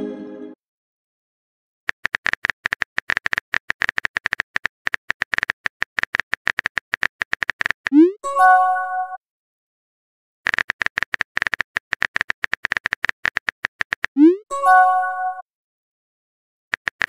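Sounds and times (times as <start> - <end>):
phone keyboard clicks: 1.9 - 8.0, 10.5 - 14.2, 16.7 - 17.0.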